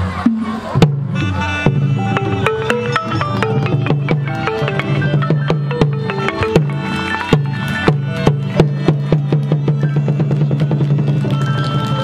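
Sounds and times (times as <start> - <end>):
drum strokes: 0.2 - 11.9
struck pitched notes: 1.1 - 10.4.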